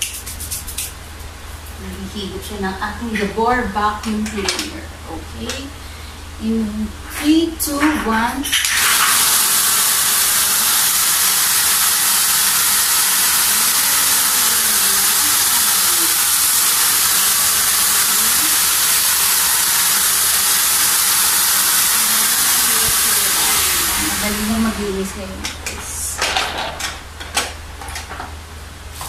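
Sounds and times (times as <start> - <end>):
vacuum cleaner running: 8.7 - 26.8.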